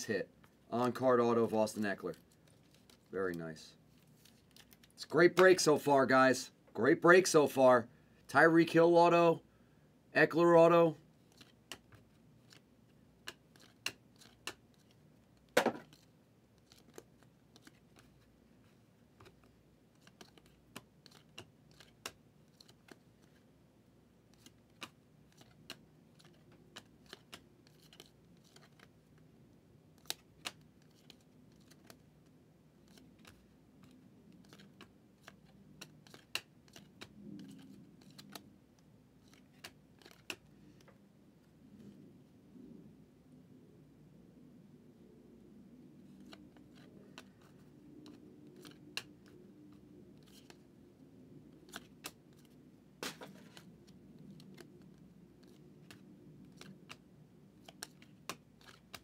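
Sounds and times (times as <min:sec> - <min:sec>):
trading cards flipped: 0:04.0 - 0:05.7, 0:11.3 - 0:12.6, 0:13.2 - 0:18.3, 0:19.2 - 0:23.4, 0:24.3 - 0:28.9, 0:30.0 - 0:32.0, 0:32.8 - 0:38.5, 0:39.2 - 0:40.9, 0:46.1 - 0:49.4, 0:50.2 - 0:50.6, 0:51.6 - 0:57.0, 0:57.6 - 0:59.0.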